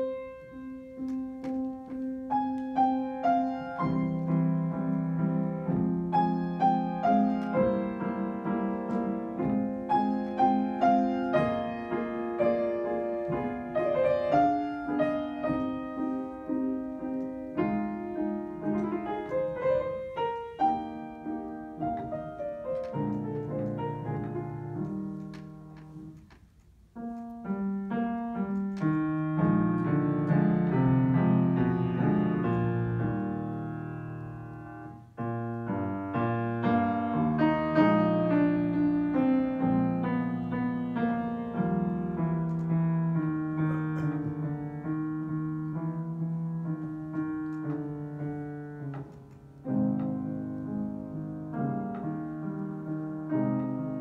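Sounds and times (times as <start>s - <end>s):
grand piano playing: 0.0s - 54.0s.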